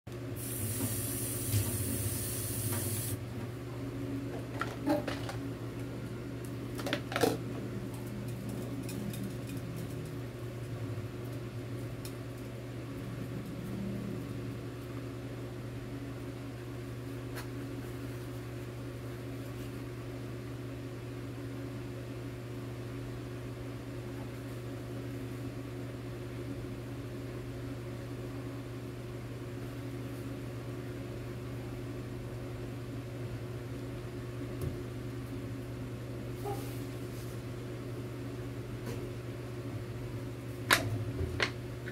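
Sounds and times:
machine hum: 0.1s - 17.2s
high hiss: 0.4s - 3.2s.

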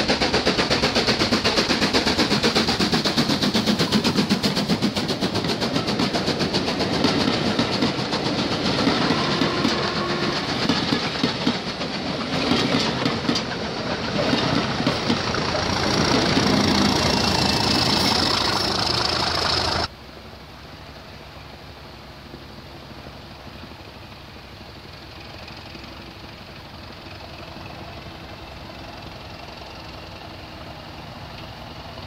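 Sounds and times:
steam locomotive exhaust beats: 0.0s - 19.9s, 21.8s - 32.0s
wheels clattering over rail joints: 0.0s - 19.9s.

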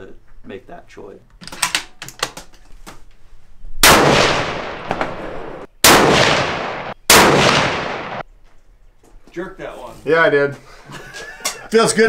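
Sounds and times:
rifle handling clicks: 1.3s - 2.6s
rifle shots echoing: 3.8s - 8.3s.

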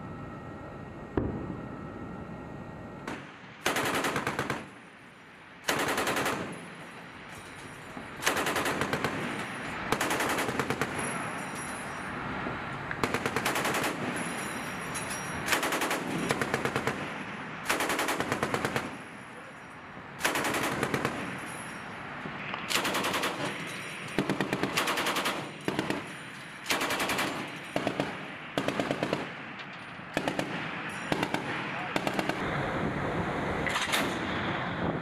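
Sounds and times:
machine gun automatic fire: 3.1s - 4.7s, 5.7s - 6.6s, 8.2s - 11.0s, 13.0s - 14.2s, 15.5s - 17.0s, 17.7s - 19.0s, 20.2s - 21.3s, 22.7s - 23.6s, 24.2s - 26.1s, 26.7s - 29.3s, 30.2s - 32.4s.

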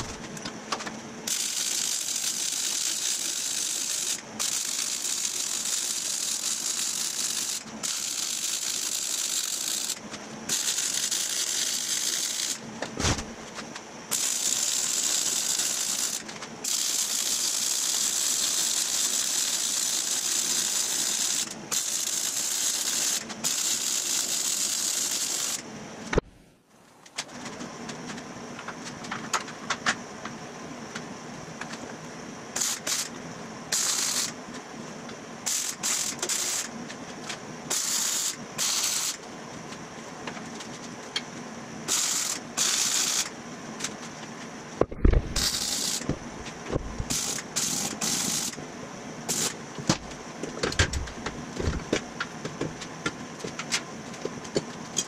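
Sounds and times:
welder crackling hiss: 1.3s - 13.2s, 14.1s - 25.6s, 32.6s - 33.1s, 33.7s - 34.4s, 35.4s - 36.7s, 37.7s - 39.2s, 41.9s - 43.3s, 45.3s - 46.2s, 47.0s - 48.6s, 49.3s - 50.0s.

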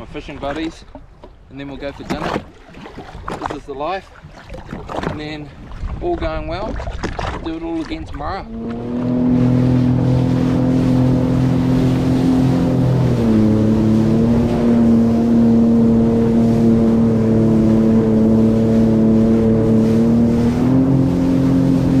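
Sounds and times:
water rushing under hull: 0.0s - 22.0s
jet ski engine running: 7.4s - 22.0s.

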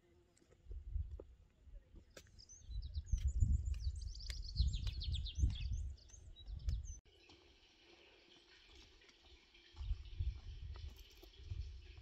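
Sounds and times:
songbird chirping: 1.7s - 10.5s.

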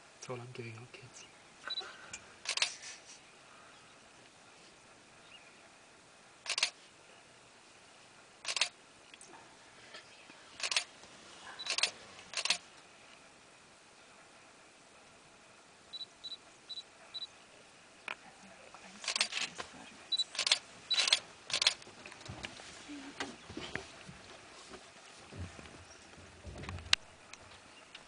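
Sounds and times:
camera shutter clicks: 2.4s - 2.8s, 6.4s - 6.8s, 8.4s - 8.8s, 10.6s - 10.9s, 11.6s - 12.6s, 19.0s - 19.5s, 20.3s - 21.8s.

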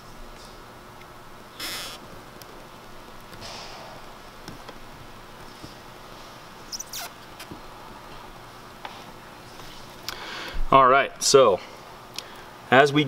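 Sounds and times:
short falling squeak: 1.6s - 2.0s, 6.7s - 7.2s
tape rustling and rubbing: 6.6s - 7.6s.

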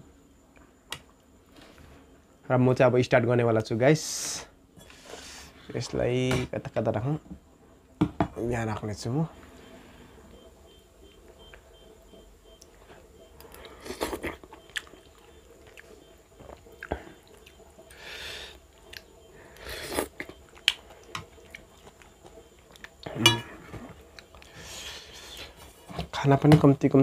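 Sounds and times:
person chewing food: 12.6s - 23.2s, 23.8s - 25.8s.

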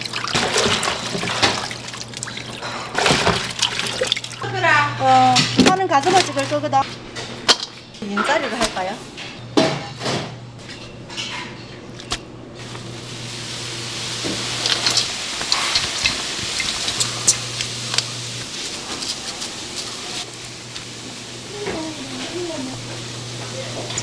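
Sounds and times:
dishes and utensils clinking: 5.3s - 12.2s, 14.3s - 17.4s.

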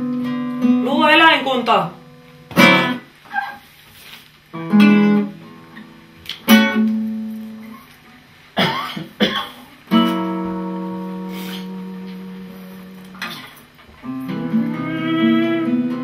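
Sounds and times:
guitar chords strummed: 0.0s - 3.2s, 4.5s - 16.0s.

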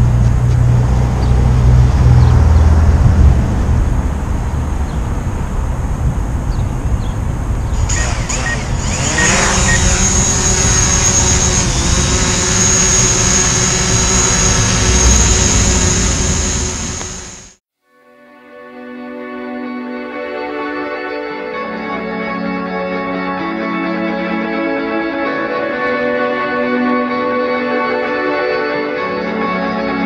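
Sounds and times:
drone motors whining: 7.7s - 17.6s.

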